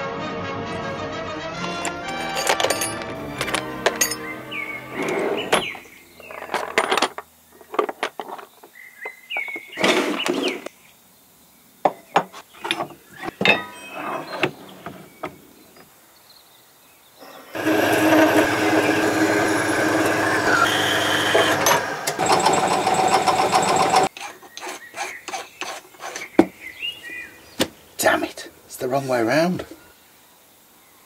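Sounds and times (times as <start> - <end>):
metal stock clinking: 1.7 - 4.3
bandsaw cutting metal: 17.2 - 26.2.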